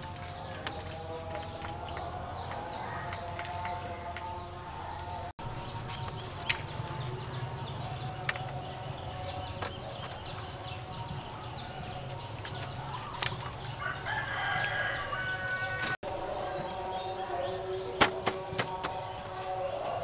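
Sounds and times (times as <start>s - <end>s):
bamboo poles knocking: 0.1s - 4.4s, 5.8s - 7.1s, 7.8s - 10.6s, 18.0s - 20.0s.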